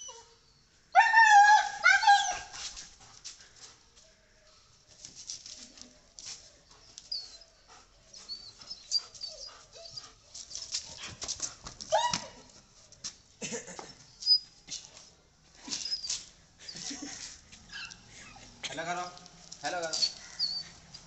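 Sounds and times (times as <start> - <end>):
claws clicking on paving: 19.0 - 21.0.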